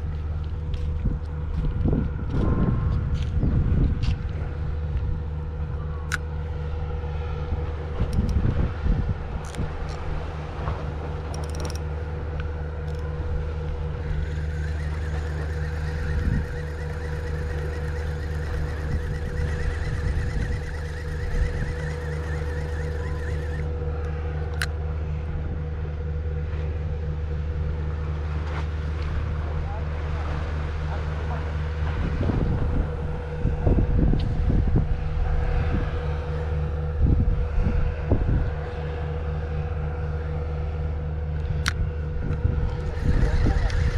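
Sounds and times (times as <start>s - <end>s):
low pulsing drone: 0.0s - 43.9s
steady low hum: 0.0s - 43.9s
wind buffeting microphone: 0.8s - 5.7s, 7.4s - 11.7s, 13.0s - 23.7s, 31.9s - 38.6s, 41.5s - 43.9s
wind thumps on microphone: 0.9s - 4.4s
faint constant tone: 4.5s - 31.8s
fishing reel whirring: 8.1s - 8.5s, 11.3s - 11.8s, 12.8s - 23.7s, 42.8s - 43.9s.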